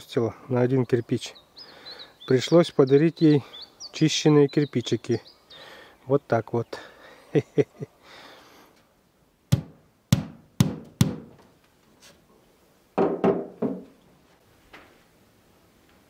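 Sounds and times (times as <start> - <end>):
hammer knocking on board wall: 9.5 - 11.3, 13.0 - 13.9.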